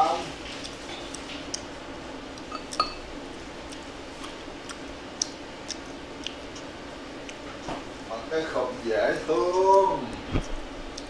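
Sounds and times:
utensils clinking on dishes: 2.5 - 3.0.

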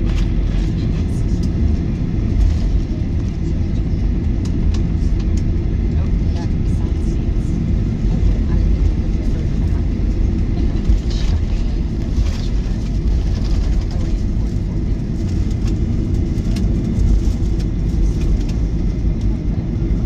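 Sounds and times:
jet engines idling rumble: 0.0 - 20.0.

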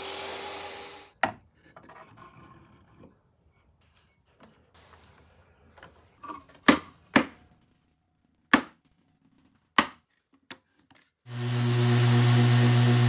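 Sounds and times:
orbital sander running: 11.3 - 13.0.

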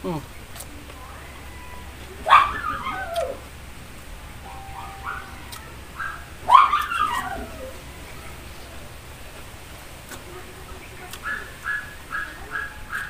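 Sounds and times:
dog whimpering: 1.5 - 3.4, 4.7 - 7.9
dog whining: 1.6 - 3.4, 4.6 - 8.0.

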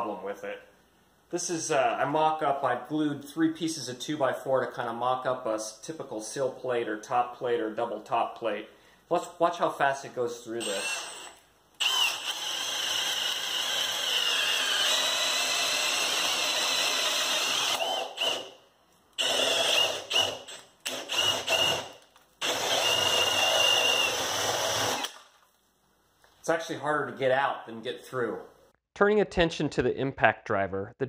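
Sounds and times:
cordless drill boring through wood: 10.6 - 18.6, 19.2 - 25.2.

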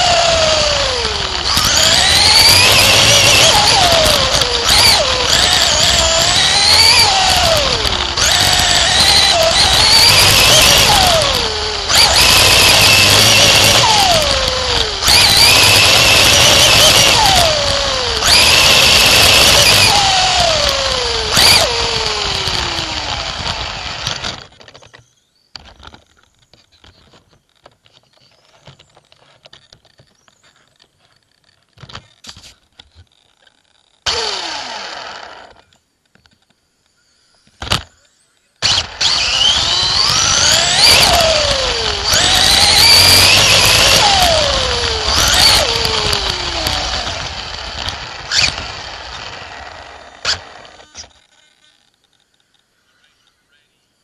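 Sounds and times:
race car engine at high revs: 0.0 - 24.2, 38.8 - 50.8.

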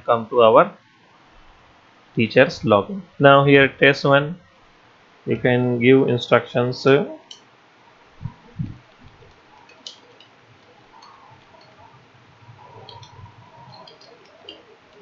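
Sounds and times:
low thumps: 8.2 - 9.5.

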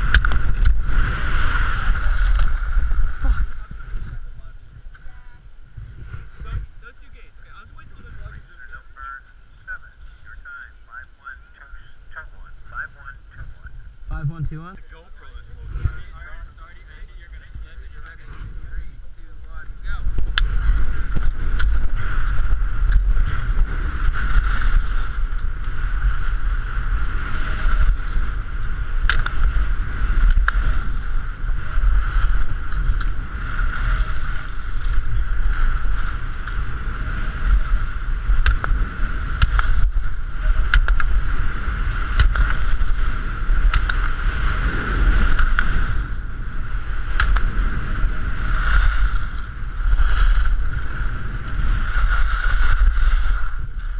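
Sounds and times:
wind buffeting microphone: 0.0 - 53.9
skis hissing on snow: 48.4 - 53.9.

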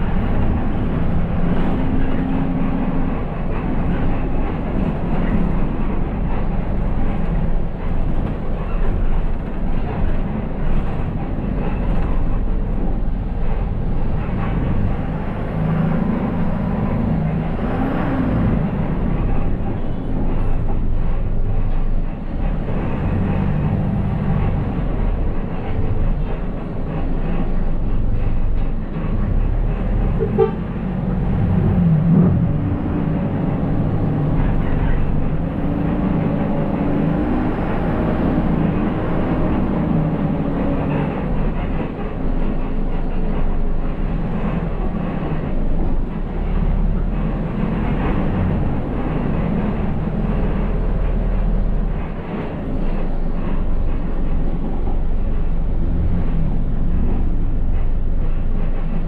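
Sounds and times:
bus engine and road noise: 0.0 - 59.0
short horn toot: 30.2 - 30.6.

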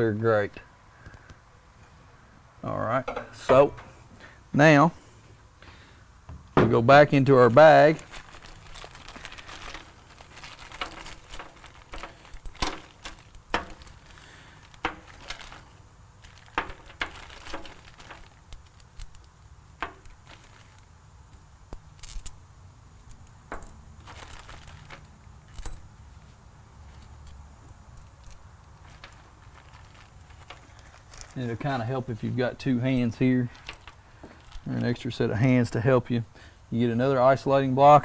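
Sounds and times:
metal hardware clinking: 3.0 - 4.1, 7.5 - 22.4, 23.0 - 25.9, 26.9 - 35.0.

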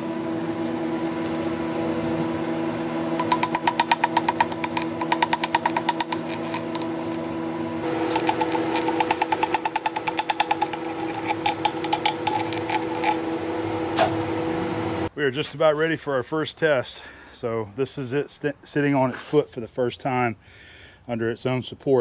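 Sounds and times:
steady machine hum: 0.0 - 15.1
air chisel rattling on steel: 3.2 - 13.4.

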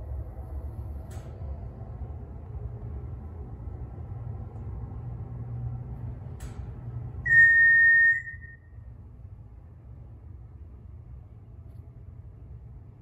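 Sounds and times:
elevator descending rumble: 0.0 - 13.0
click: 1.0 - 1.4, 6.4 - 6.7, 11.6 - 11.9.

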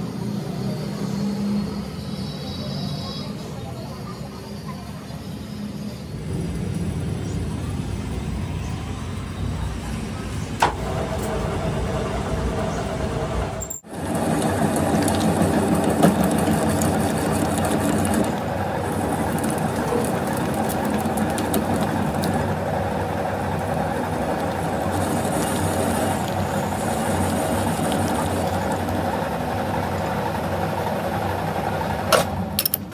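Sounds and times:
metal lathe humming: 10.6 - 32.8.

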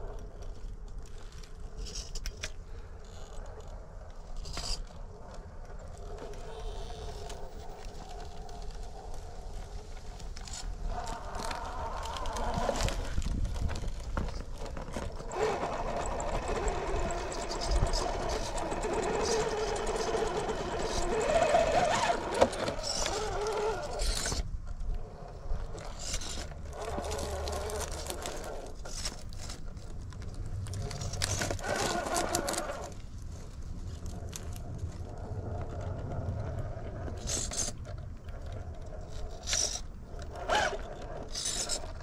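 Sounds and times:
toy car motor whirring: 4.4 - 4.9, 10.4 - 24.5, 25.4 - 29.6, 30.8 - 33.0, 37.2 - 37.8, 39.0 - 42.0
tyres clicking and scraping on stone: 10.2 - 33.0, 34.0 - 42.0.

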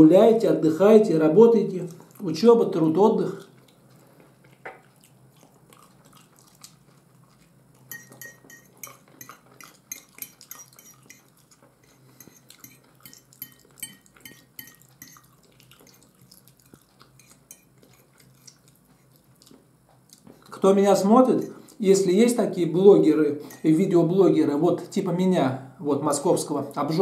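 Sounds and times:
soft wet chewing: 1.7 - 20.6, 21.3 - 21.8
fork clinking on a plate: 7.9 - 15.2, 17.2 - 18.0.

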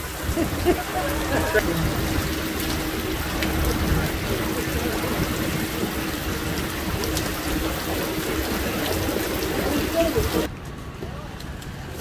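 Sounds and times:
heavy rain on tarmac: 0.0 - 12.0
wind rumbling on microphone: 0.0 - 12.0.

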